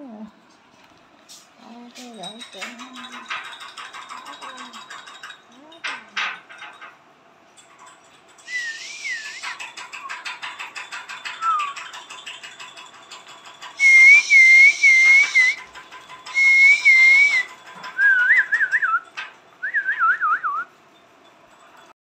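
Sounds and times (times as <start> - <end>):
fast faint clicks: 7.6 - 19.4
warbling whistled notes: 8.4 - 10.4, 11.3 - 11.9, 13.8 - 20.7.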